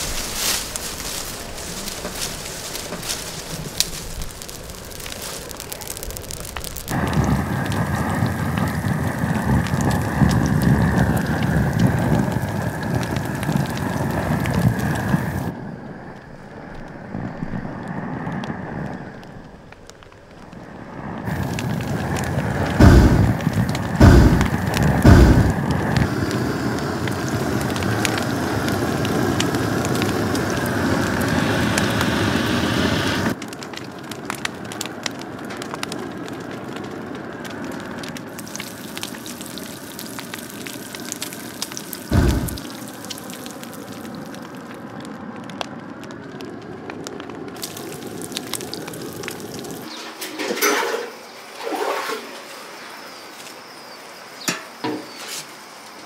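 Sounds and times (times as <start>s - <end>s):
open flame rushing: 0.0s - 53.0s
low thumps: 22.8s - 26.0s, 42.1s - 42.6s.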